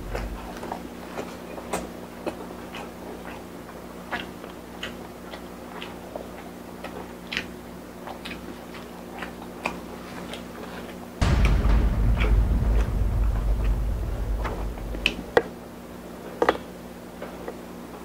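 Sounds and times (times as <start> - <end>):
steady low hum: 0.0 - 0.6, 11.2 - 15.4.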